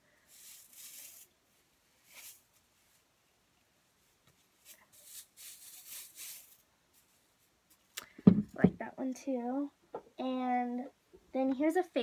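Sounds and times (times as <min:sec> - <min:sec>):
stiff bristles rustling against hands: 0:00.3 - 0:03.1, 0:04.0 - 0:08.0.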